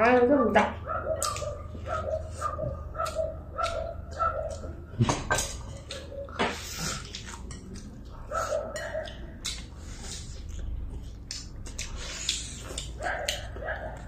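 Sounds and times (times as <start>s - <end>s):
people chewing bones: 1.0s - 14.0s
chopsticks tapping bowls: 3.0s - 9.7s.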